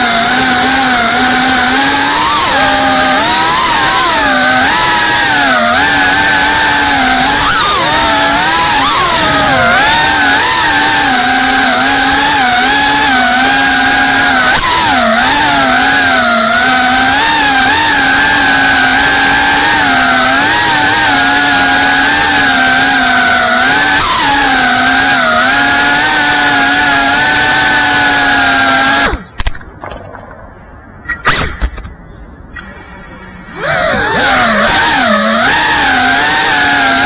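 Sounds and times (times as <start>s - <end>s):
drone motors whining: 0.0s - 37.0s.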